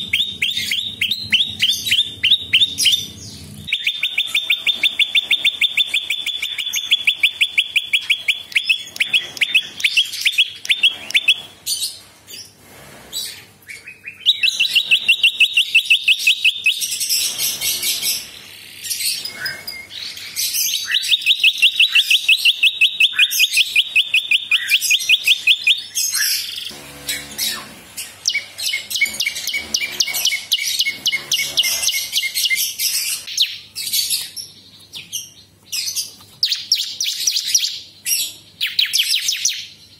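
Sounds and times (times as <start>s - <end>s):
bird trilling: 0.0s - 11.6s, 13.7s - 34.1s
bird chirps: 0.0s - 12.5s, 13.2s - 39.9s.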